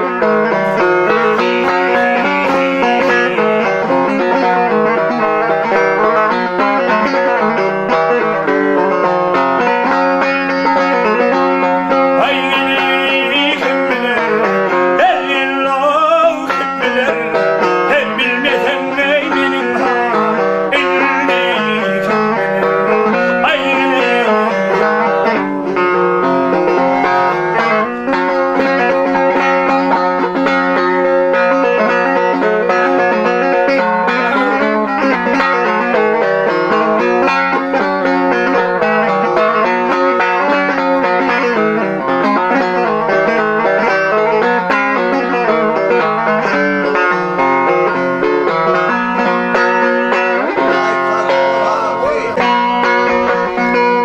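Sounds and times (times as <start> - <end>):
lute strummed rapidly: 0.0 - 54.0
man singing: 0.7 - 4.6, 12.1 - 25.4, 33.3 - 36.0, 50.6 - 52.9.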